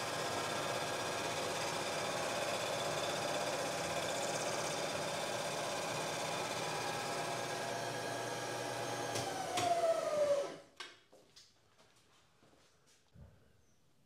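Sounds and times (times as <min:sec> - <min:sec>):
milling machine running: 0:00.0 - 0:10.6.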